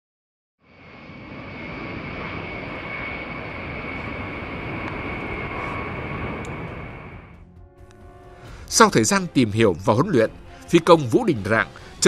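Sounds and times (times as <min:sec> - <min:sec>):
jet engines whining and rushing: 0:00.6 - 0:09.3.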